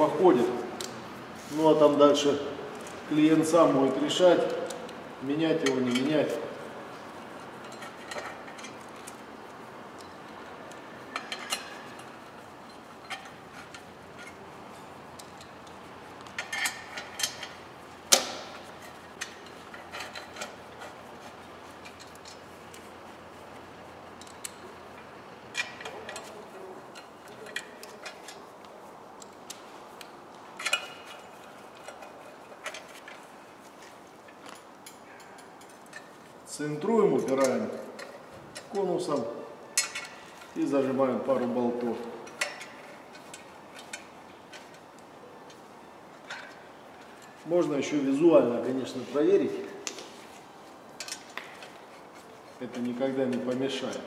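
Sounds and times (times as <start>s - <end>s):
metallic clicks of tools and bolts: 7.4s - 9.2s, 9.9s - 22.9s, 24.1s - 28.5s, 29.1s - 36.3s, 37.2s - 40.6s, 41.4s - 47.4s, 49.8s - 54.0s.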